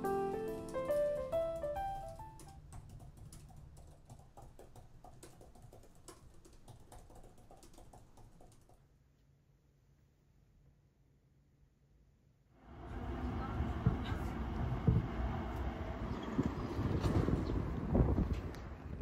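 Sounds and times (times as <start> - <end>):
piano tune: 0.0 - 2.7
typing on a laptop keyboard: 0.7 - 8.8.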